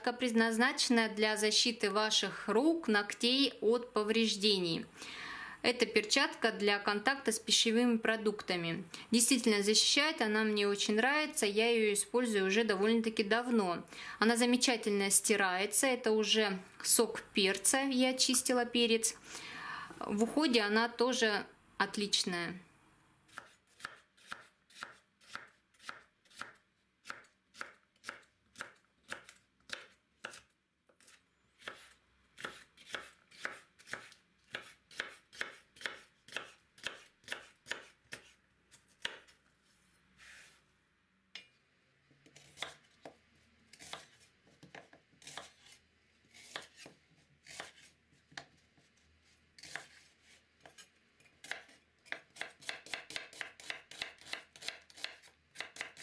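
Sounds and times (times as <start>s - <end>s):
knife chopping on wooden board: 31.0s - 38.4s, 39.0s - 39.3s, 42.3s - 43.2s, 46.3s - 48.5s, 51.4s - 56.0s.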